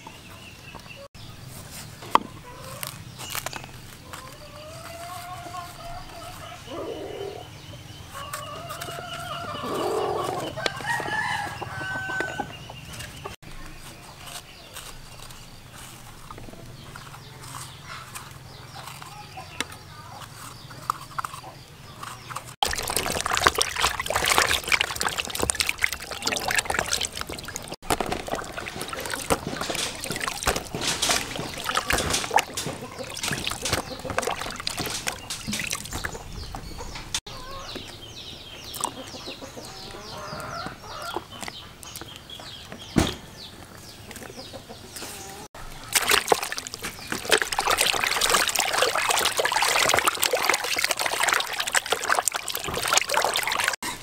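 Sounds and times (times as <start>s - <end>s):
knife scraping gourd: 1.5s - 6.5s, 8.1s - 36.2s
water sloshing in a basin: 22.0s - 37.2s, 45.5s - 54.0s.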